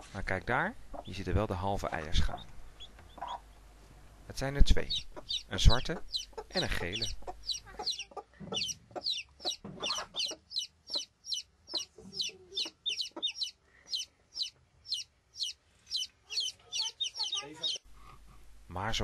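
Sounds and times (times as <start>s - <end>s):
chicks peeping: 0.9s - 3.7s, 4.4s - 18.3s
hen clucking softly: 1.9s - 3.6s, 4.9s - 18.2s.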